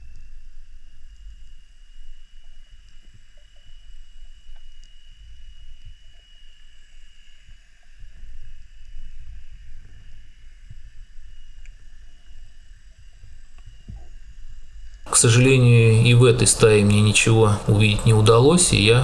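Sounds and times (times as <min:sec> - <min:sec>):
small ticks: 0:02.4 - 0:05.0
faint steady high tone: 0:15.1 - 0:19.0.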